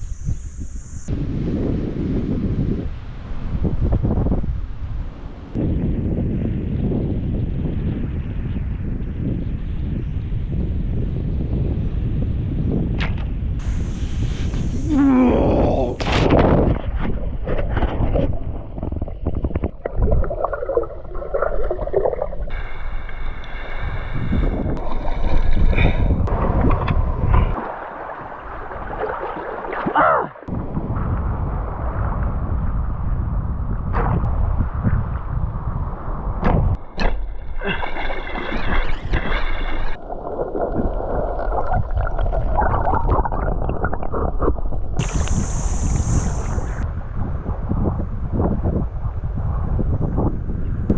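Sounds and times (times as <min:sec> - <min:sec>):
wind rumbling on microphone: 0:00.0 - 0:50.9
steady high hiss: 0:13.6 - 0:15.2, 0:45.0 - 0:46.8
water splashing: 0:13.6 - 0:30.5, 0:37.0 - 0:46.8
muffled underwater sloshing: 0:16.7 - 0:30.5, 0:36.9 - 0:45.3.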